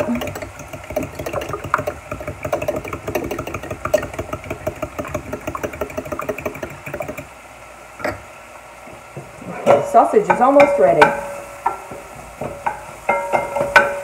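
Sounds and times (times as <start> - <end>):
fork beating eggs in glass bowl: 0.0 - 7.3.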